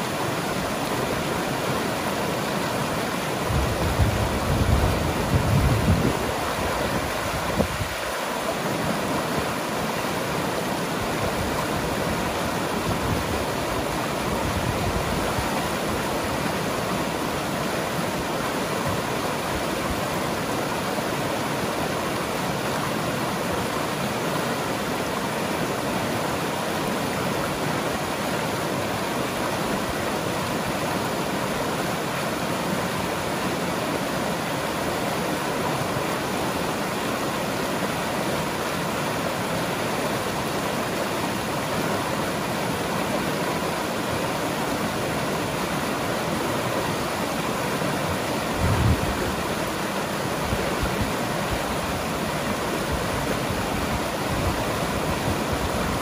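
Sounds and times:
river rushing over rapids: 0:00.0 - 0:56.0.

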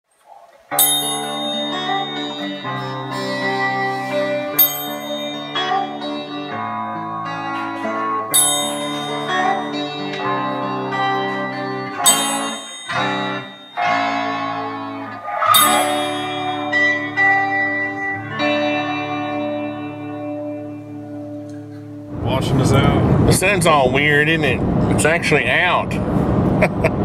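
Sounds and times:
electric bass and guitar tune: 0:00.7 - 0:27.0
triangle ringing: 0:00.8 - 0:06.7, 0:08.3 - 0:11.4, 0:12.0 - 0:18.0.

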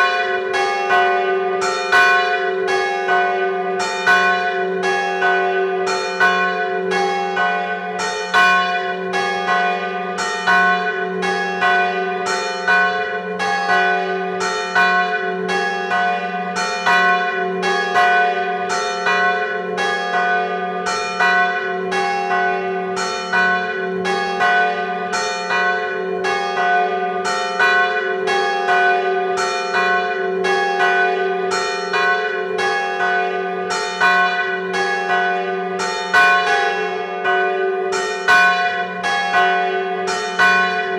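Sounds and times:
church bell ringing: 0:00.0 - 0:40.9.

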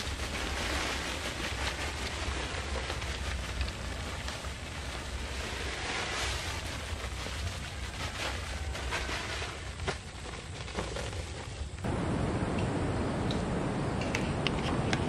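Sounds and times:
wind rumble on microphone: 0:11.5 - 0:15.0.

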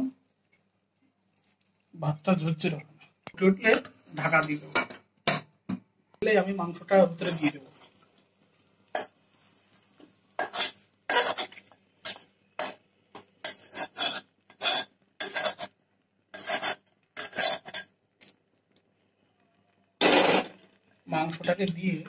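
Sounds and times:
metal spoon scraping steel bowl: 0:10.4 - 0:15.8, 0:16.4 - 0:17.9.

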